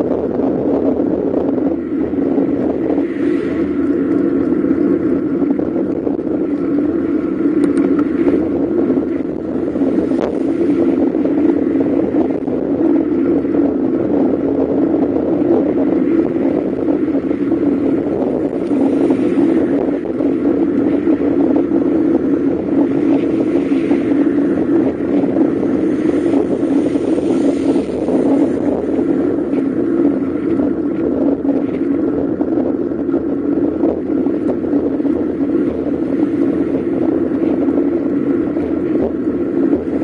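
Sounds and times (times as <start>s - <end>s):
bicycle tyre and road noise: 0.0s - 40.0s
wind on microphone: 0.0s - 40.0s.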